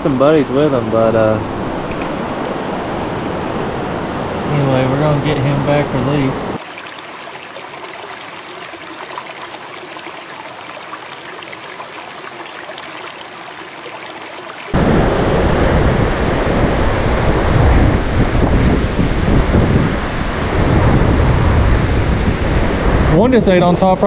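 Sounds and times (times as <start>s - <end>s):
river water babbling: 6.6s - 14.8s
river rushing loudly: 6.6s - 17.5s
wind buffeting microphone: 14.8s - 24.0s.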